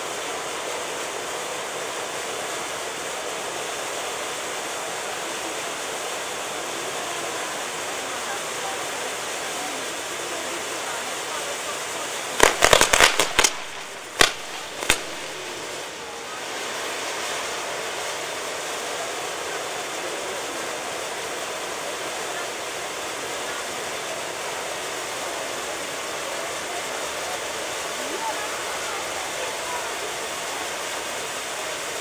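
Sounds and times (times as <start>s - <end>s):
firework spark fountain hissing: 0.0s - 32.0s
firework bangs: 12.2s - 18.8s.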